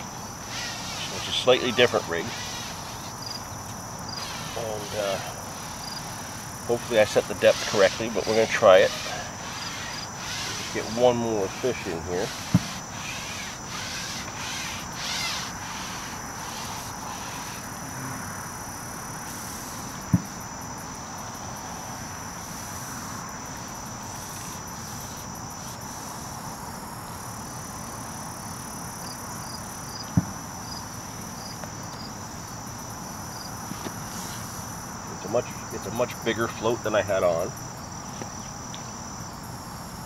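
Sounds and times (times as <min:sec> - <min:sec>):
insects trilling: 0:00.0 - 0:40.0
sharp knocks: 0:12.3 - 0:12.8, 0:20.1 - 0:20.4.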